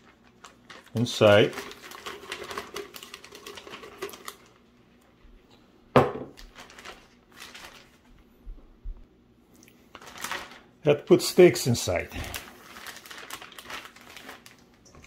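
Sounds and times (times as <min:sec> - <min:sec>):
plastic bag crinkling: 0:00.0 - 0:04.7, 0:06.3 - 0:08.3, 0:09.8 - 0:15.0
marinade pouring: 0:00.0 - 0:05.1.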